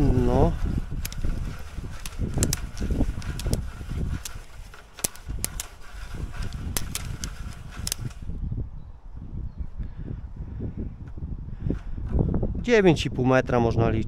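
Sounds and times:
cable clicking and ticking: 0.0s - 8.3s.

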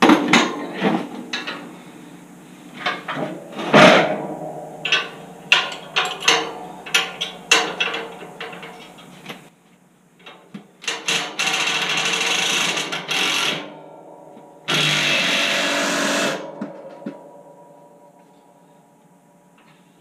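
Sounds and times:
impact wrench hammering: 2.7s - 9.4s.

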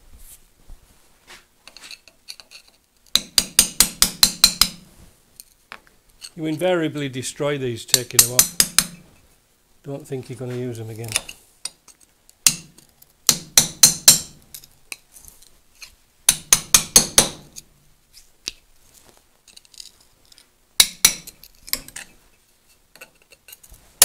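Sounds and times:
hammer tapping metal punch: 3.1s - 4.8s, 7.9s - 9.0s, 12.5s - 14.4s, 16.3s - 17.5s, 20.8s - 22.0s.

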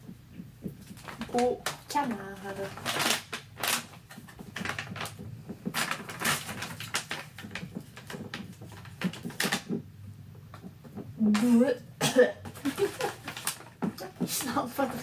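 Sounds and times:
plastic pouch crinkling and tearing: 0.9s - 9.7s, 12.6s - 13.7s.

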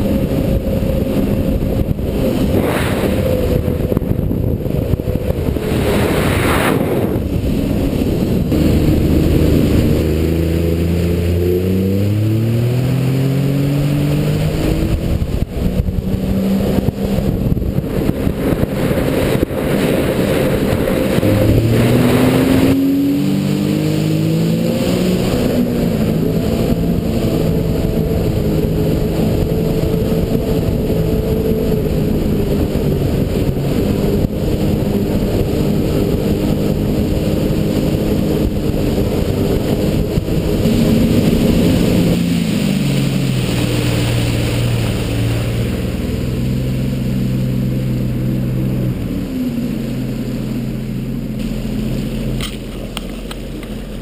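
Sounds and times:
jet ski engine accelerating: 0.0s - 54.0s
rush of water and wind: 0.0s - 54.0s.

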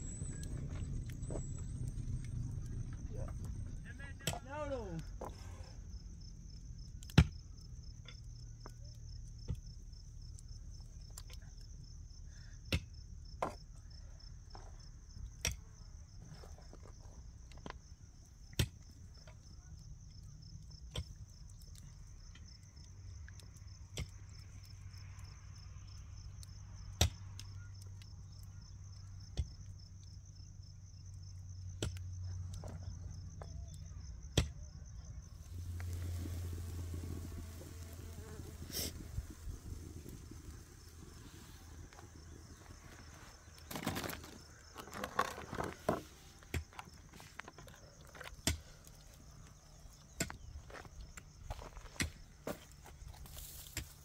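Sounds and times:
insects chirring: 0.0s - 54.0s.

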